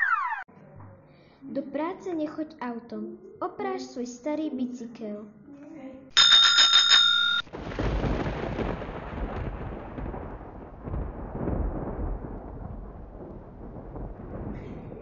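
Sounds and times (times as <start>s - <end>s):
electronic multi-pitch tone: 0.0s - 0.5s
low rolling rumble: 7.6s - 15.0s.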